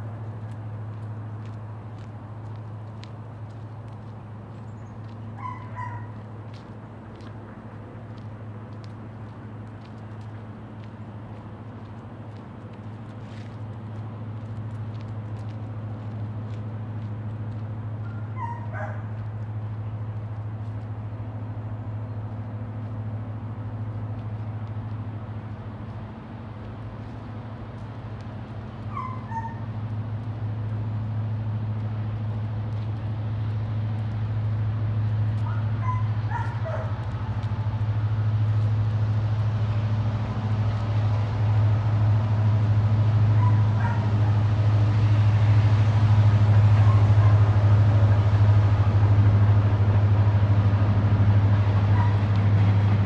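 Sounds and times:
dog yipping: 5.4 - 6.2, 18.4 - 19.1, 28.9 - 29.7, 35.5 - 36.9, 43.4 - 44.1, 52.0 - 52.2.

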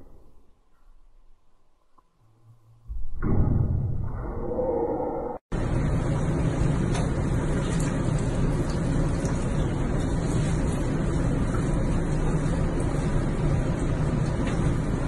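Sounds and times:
bathtub water rushing: 5.6 - 15.0.

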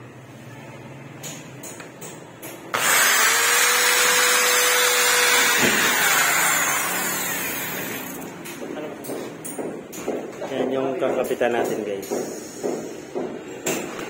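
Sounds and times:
electric drill boring into metal: 2.7 - 8.2.

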